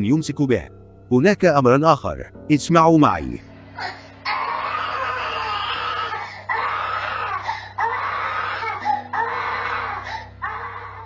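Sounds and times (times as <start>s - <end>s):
low music drone: 0.0s - 11.0s
toddler crying: 3.8s - 11.0s.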